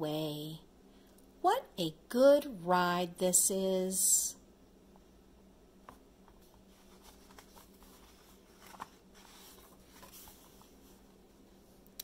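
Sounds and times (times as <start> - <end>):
paper page rustling: 6.4 - 11.1.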